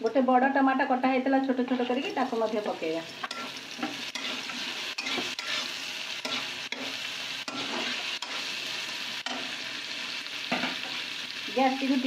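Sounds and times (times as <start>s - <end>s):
vegetables sizzling in hot oil: 0.0s - 12.0s
spatula scraping a pan: 3.2s - 11.1s.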